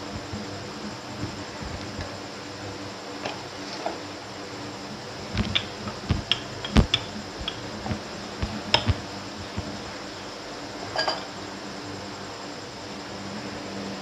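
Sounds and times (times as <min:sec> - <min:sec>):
steady low hum: 0:00.0 - 0:14.0
rolling pin rolling dough: 0:05.2 - 0:10.0
rolling pin knocking on board: 0:05.4 - 0:09.0.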